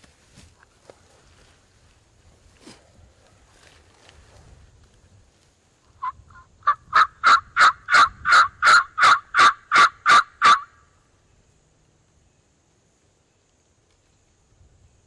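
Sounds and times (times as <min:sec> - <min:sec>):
turkey call yelps: 0:06.0 - 0:10.9.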